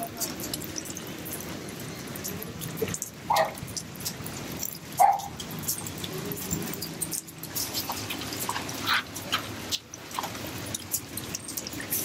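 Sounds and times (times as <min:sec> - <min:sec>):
dog barking: 0:03.3 - 0:03.6, 0:05.0 - 0:05.3.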